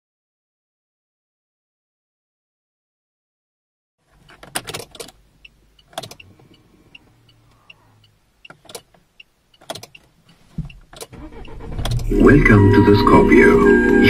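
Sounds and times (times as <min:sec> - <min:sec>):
car key clicking in ignition: 0:04.2 - 0:06.3, 0:08.4 - 0:09.0, 0:09.6 - 0:12.1
engine starter cranking: 0:10.7 - 0:12.4.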